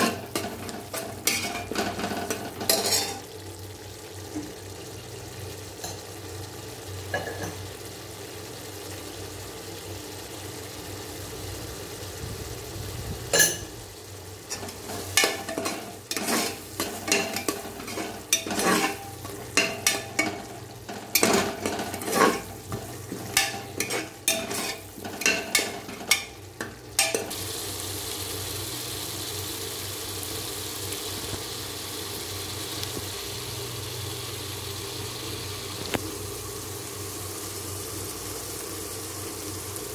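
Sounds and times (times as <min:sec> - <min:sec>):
steady sizzling hiss: 0:00.0 - 0:39.9
metal ladle scraping pot: 0:14.5 - 0:26.4.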